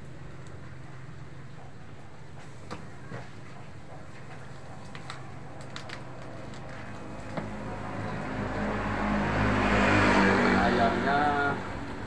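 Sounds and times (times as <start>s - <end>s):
vehicle engine approaching: 5.3s - 12.0s.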